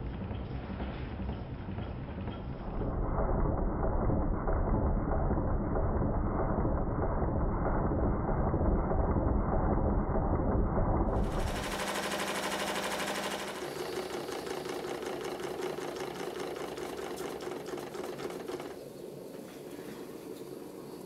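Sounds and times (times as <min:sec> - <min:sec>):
model steam engine clattering: 0:11.2 - 0:18.9.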